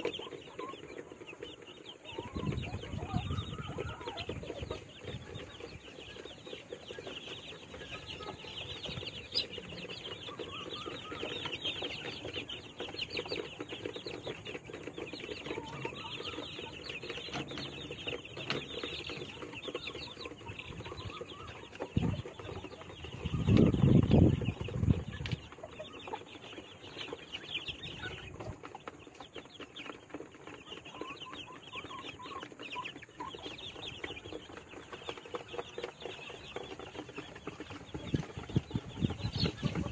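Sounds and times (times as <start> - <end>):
chicks cheeping: 0.0 - 39.9.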